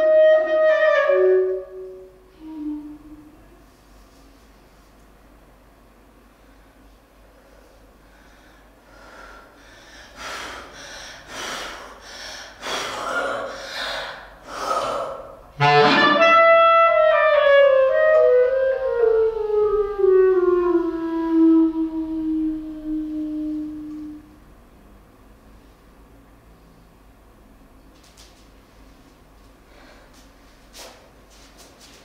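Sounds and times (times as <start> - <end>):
clarinet note sliding downward: 0.0 - 3.6, 15.6 - 24.5
breathy clarinet puffs: 0.0 - 3.7, 15.6 - 24.4.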